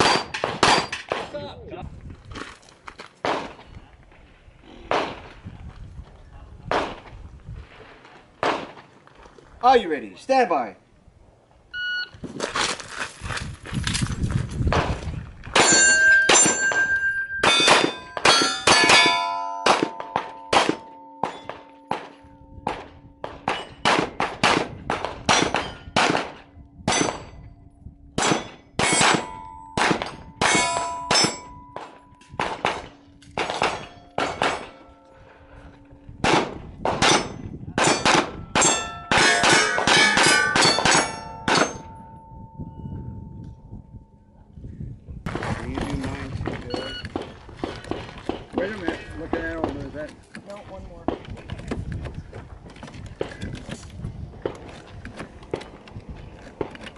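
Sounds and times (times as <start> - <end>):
steel targets clanging: 0.0 - 1.2, 15.6 - 24.3, 28.2 - 42.4
rapid pistol shots: 17.5 - 27.2, 28.2 - 34.8, 36.2 - 41.8.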